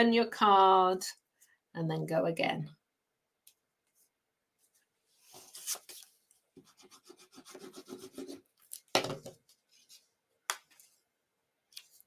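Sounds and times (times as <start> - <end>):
paper rubbing and scratching: 5.3 - 8.4.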